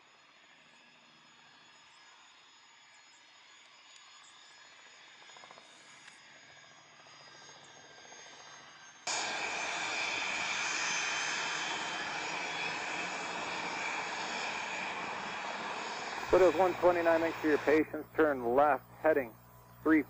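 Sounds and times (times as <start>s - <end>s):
jet engines whining: 5.8s - 20.0s.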